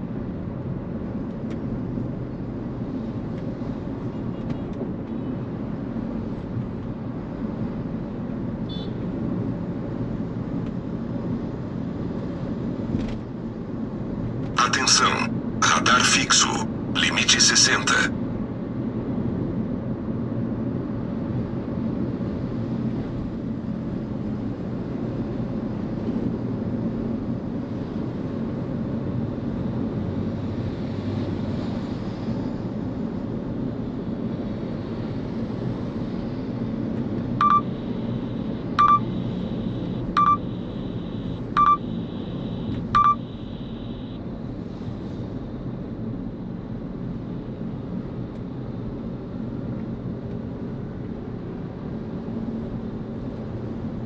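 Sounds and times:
car road and engine noise: 0:00.0 - 0:54.0
short electronic beeps: 0:37.4 - 0:44.2.

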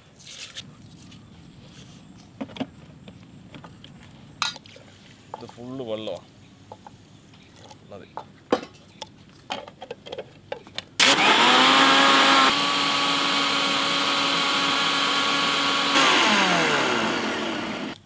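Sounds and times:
electric mixer grinder whining: 0:11.0 - 0:18.0.

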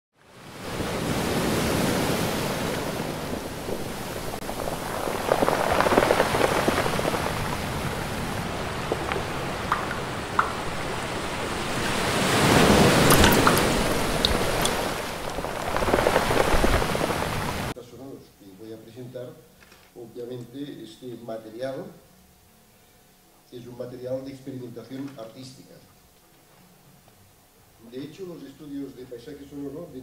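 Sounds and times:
rushing water: 0:00.2 - 0:17.8
small drips and crackles: 0:03.7 - 0:17.7.

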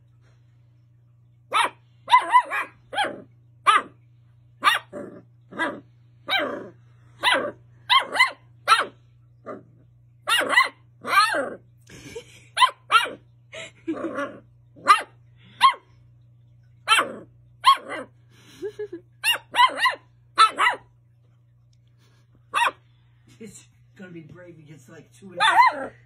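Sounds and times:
puppy barking: 0:01.5 - 0:09.6, 0:10.2 - 0:11.6, 0:12.6 - 0:13.3, 0:14.8 - 0:15.9, 0:16.8 - 0:18.2, 0:19.2 - 0:20.9, 0:22.5 - 0:22.8, 0:25.4 - 0:26.0.

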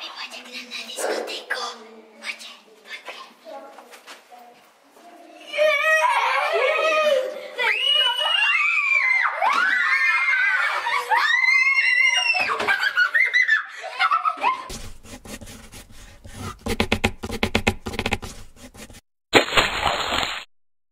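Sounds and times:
children shrieking and laughing: 0:05.4 - 0:14.7.

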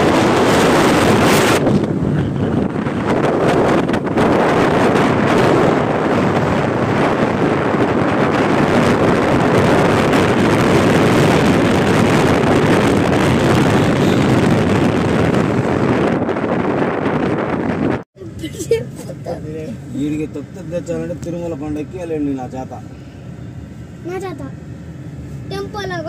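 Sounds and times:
wind on microphone: 0:00.0 - 0:18.1
vehicle road and engine noise: 0:00.0 - 0:26.0.

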